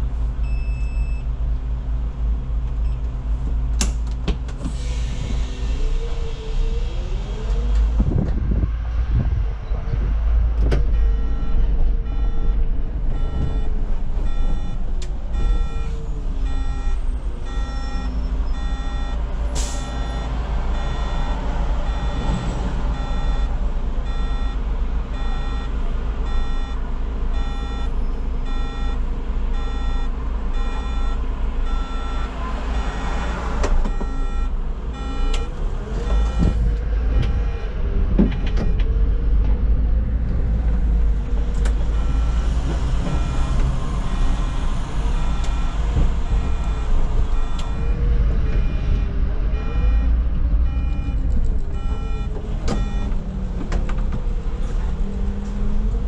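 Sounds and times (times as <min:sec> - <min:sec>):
bus engine rumble: 0:00.0 - 0:56.0
electronic beeps: 0:11.0 - 0:12.6, 0:13.2 - 0:13.7, 0:14.3 - 0:14.8, 0:15.4 - 0:19.2, 0:19.8 - 0:22.4, 0:23.0 - 0:23.5, 0:24.1 - 0:24.6, 0:25.2 - 0:25.7, 0:27.4 - 0:27.9, 0:30.6 - 0:33.1, 0:33.9 - 0:35.5, 0:36.1 - 0:36.6, 0:45.2 - 0:50.1, 0:50.7 - 0:51.2, 0:51.8 - 0:53.1.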